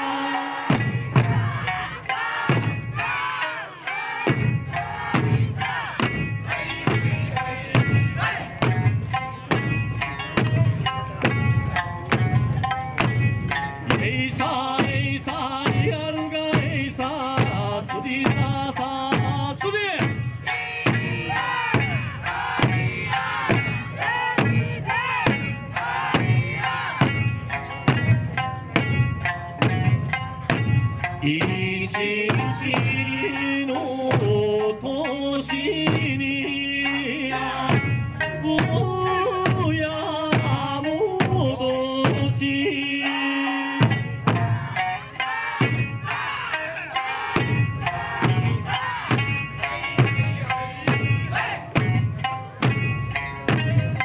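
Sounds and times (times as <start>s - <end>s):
person singing: 0.0s - 0.8s, 31.2s - 43.9s
crowd chanting: 0.0s - 10.4s, 20.4s - 27.3s, 32.3s - 34.0s, 42.9s - 53.6s
music with a steady beat: 0.0s - 54.0s.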